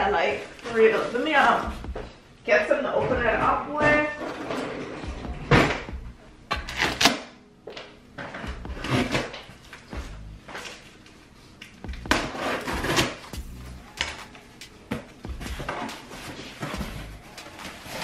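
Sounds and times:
scraping on cardboard box: 12.1 - 13.3.

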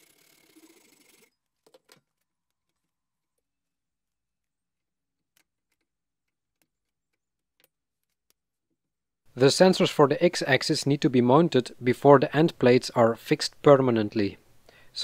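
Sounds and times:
hacksaw cutting steel: 0.0 - 1.4.

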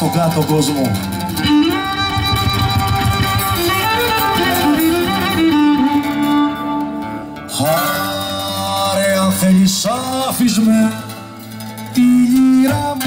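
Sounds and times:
plucked lute accompaniment: 0.0 - 13.0
bowed lyra melody: 0.9 - 7.5.

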